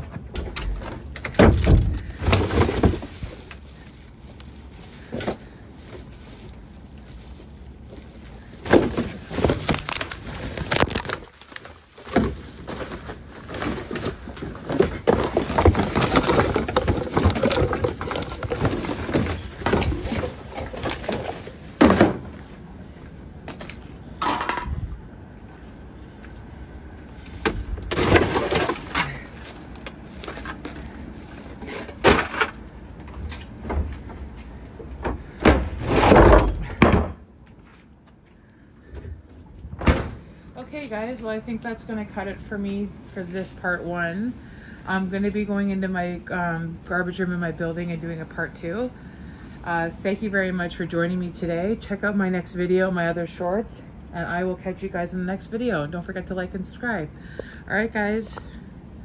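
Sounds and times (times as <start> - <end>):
clattering and rustling: 0.0 - 22.5, 27.5 - 34.3.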